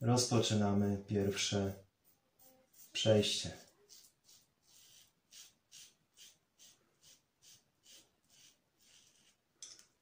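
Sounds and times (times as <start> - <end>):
razor scraping stubble: 2.7 - 9.4.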